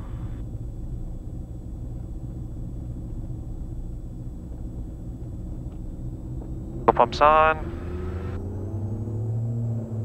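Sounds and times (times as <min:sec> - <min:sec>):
aircraft engines droning: 0:00.0 - 0:10.0.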